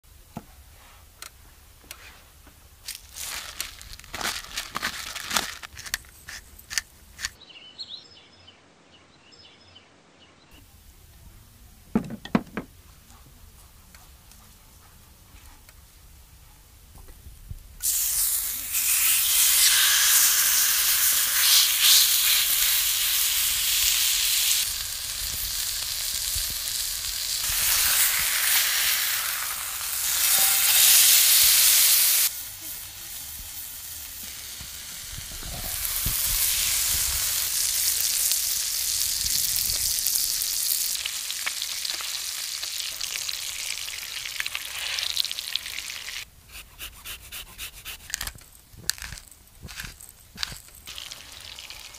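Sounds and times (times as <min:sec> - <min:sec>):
steak sizzling in a pan: 0:17.8 - 0:46.2, 0:50.8 - 0:51.9.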